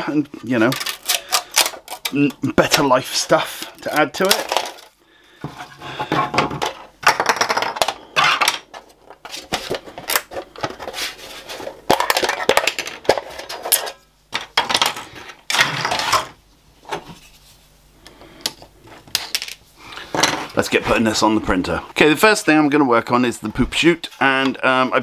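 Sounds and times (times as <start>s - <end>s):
plastic parts clicking and snapping: 0.6s - 2.9s.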